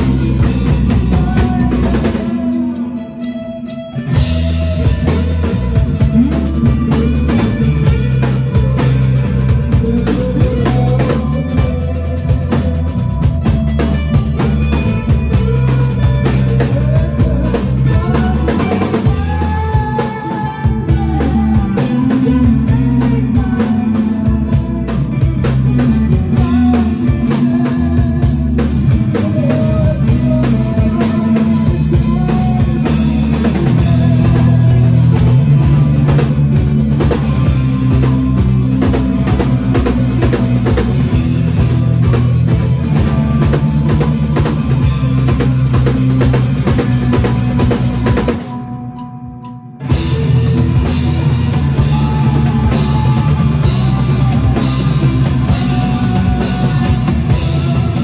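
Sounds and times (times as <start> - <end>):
band playing: 0.0 - 58.0.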